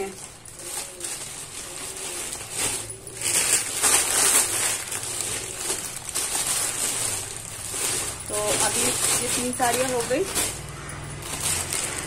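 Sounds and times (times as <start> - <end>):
plastic packaging rustling: 0.0 - 12.0.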